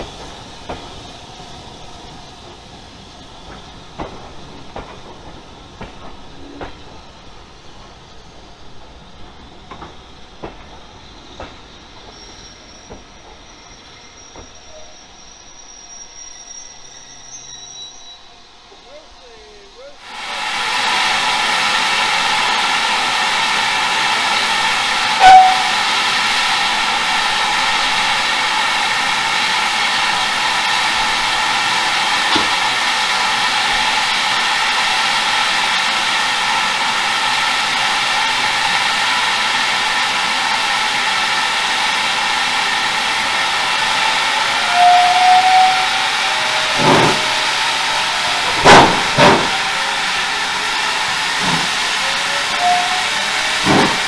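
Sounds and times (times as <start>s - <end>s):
steam hissing: 0.0s - 54.0s
sharp knocks: 53.6s - 54.0s.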